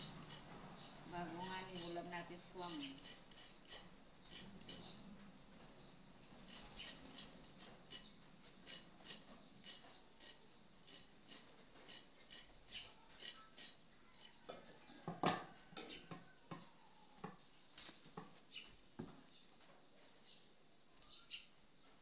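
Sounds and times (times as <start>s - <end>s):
food grating on metal grater: 0.0s - 5.1s, 6.3s - 14.5s.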